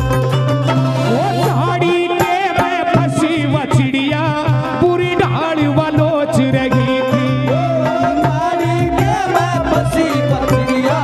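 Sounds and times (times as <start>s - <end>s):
wavering melody instrument: 0.0s - 3.4s, 6.8s - 11.0s
repeating low note: 0.7s - 1.9s.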